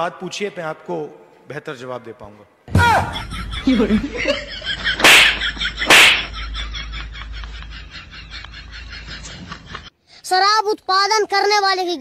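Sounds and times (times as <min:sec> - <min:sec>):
loud sharp slaps: 0:04.9 - 0:06.4.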